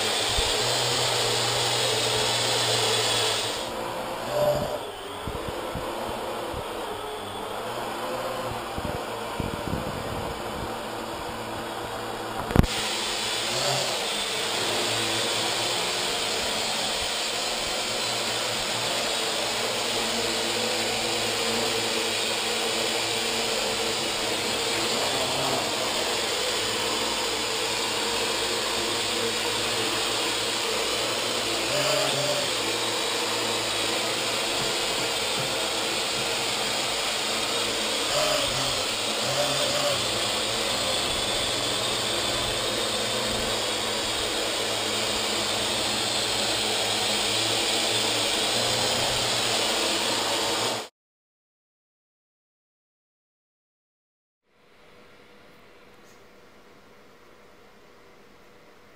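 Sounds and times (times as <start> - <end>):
quadcopter propellers whirring: 0.0 - 50.9.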